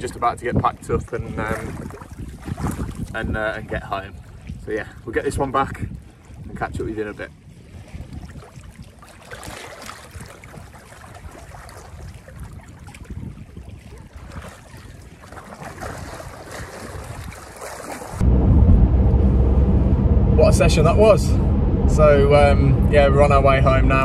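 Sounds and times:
wind buffeting microphone: 0:00.0 - 0:24.0
water sloshing and splashing: 0:01.0 - 0:18.2
car rumbling on road: 0:18.2 - 0:24.0.

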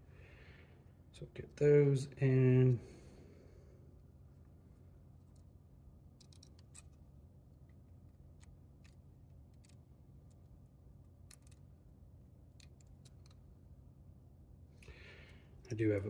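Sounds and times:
low steady hum: 0:00.0 - 0:16.0
small clicks and ticks: 0:07.7 - 0:11.7, 0:12.5 - 0:13.5.

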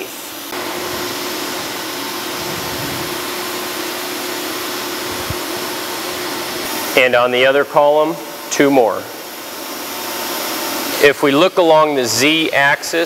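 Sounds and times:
whooshing machine noise: 0:00.6 - 0:06.7
faint constant hum: 0:00.6 - 0:09.9.

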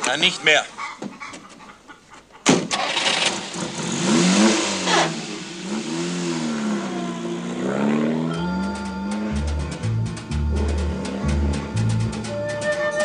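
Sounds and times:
car engine revving: 0:02.7 - 0:13.0
music: 0:08.3 - 0:13.0.

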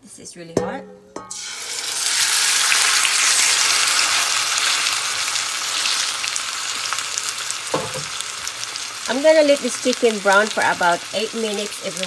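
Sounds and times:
chicken sizzling in hot oil: 0:01.3 - 0:12.0.

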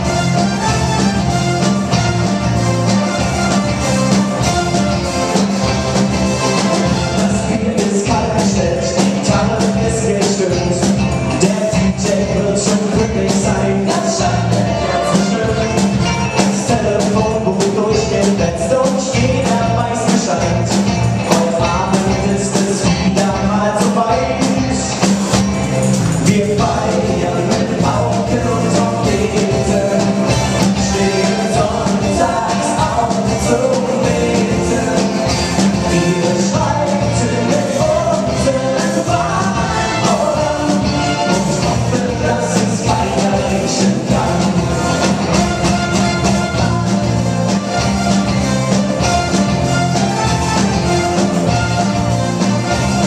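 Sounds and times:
live rock band playing: 0:00.0 - 0:53.0
person singing lead vocals: 0:06.6 - 0:25.4, 0:26.0 - 0:46.4.

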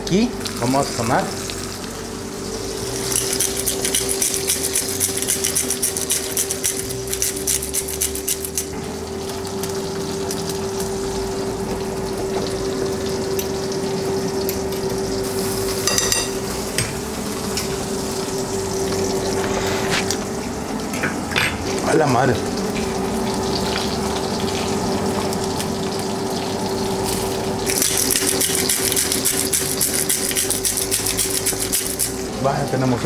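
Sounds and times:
sauce sizzling in a hot pan: 0:00.4 - 0:07.4, 0:08.4 - 0:19.3, 0:22.3 - 0:32.3
fork stirring: 0:03.0 - 0:08.7, 0:27.7 - 0:32.2.

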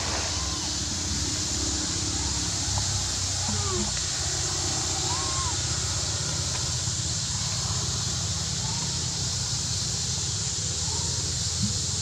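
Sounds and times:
steady high hiss: 0:00.0 - 0:12.0.

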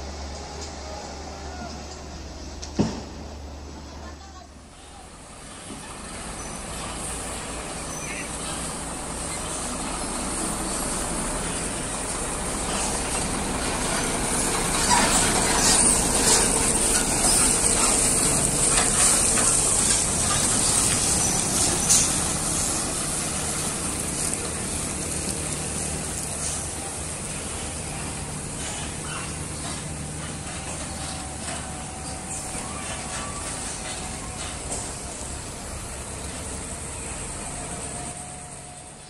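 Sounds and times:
trucks passing by: 0:00.0 - 0:39.0.

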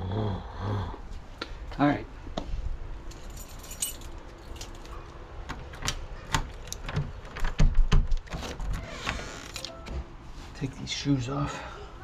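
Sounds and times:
lock and door handle knocks: 0:05.5 - 0:08.4.

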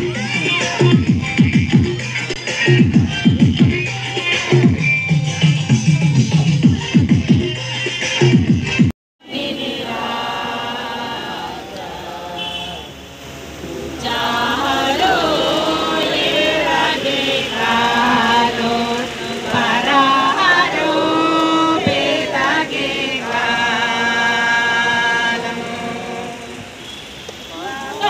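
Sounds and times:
group chanting a prayer song: 0:09.2 - 0:13.0, 0:13.6 - 0:26.7.

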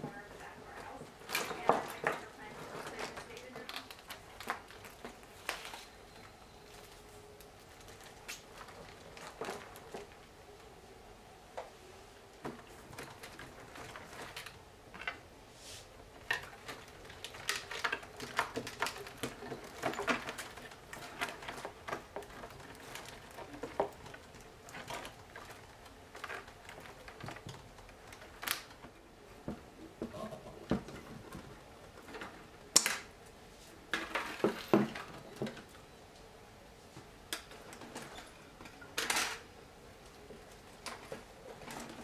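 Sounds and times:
twigs rustling and clicking: 0:00.8 - 0:10.7, 0:16.1 - 0:29.0.

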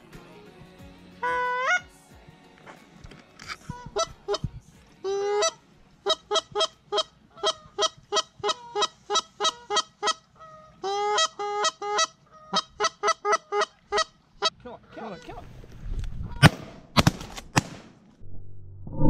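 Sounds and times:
goose call clucks: 0:03.7 - 0:04.5, 0:05.1 - 0:15.4.

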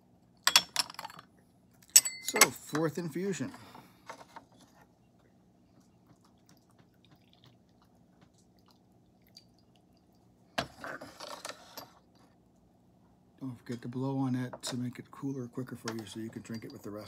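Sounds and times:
tea cups clinking: 0:15.5 - 0:17.0.

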